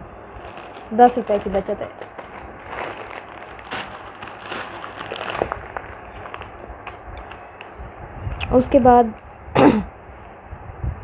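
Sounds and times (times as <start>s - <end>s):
plastic bags crinkling: 0.3s - 7.7s.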